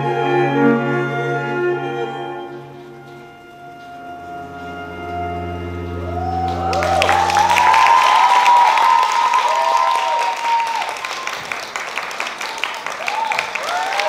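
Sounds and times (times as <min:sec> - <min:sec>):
orchestral music final chord: 0:00.0 - 0:07.7
audience applause: 0:06.0 - 0:14.0
high cheering: 0:06.0 - 0:14.0.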